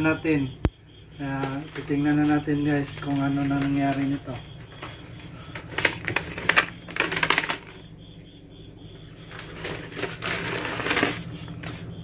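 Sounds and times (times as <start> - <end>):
paper cover crinkling: 5.4 - 7.8, 9.3 - 11.9.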